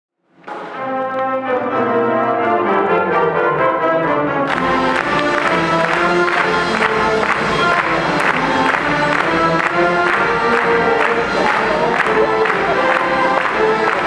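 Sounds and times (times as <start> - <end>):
brass chords: 0.4 - 14.0
percussion: 4.5 - 14.0.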